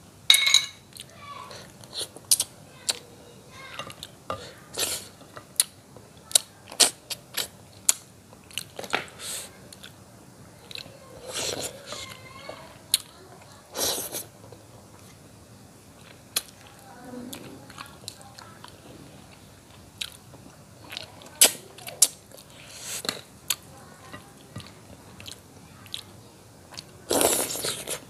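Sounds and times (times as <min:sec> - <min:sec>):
man chewing: 0:19.7 - 0:23.6, 0:26.7 - 0:28.0.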